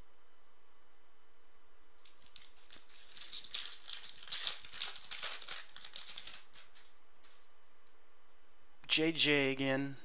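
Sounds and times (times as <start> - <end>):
cards and foil wrapper crinkling: 2.0 - 7.4.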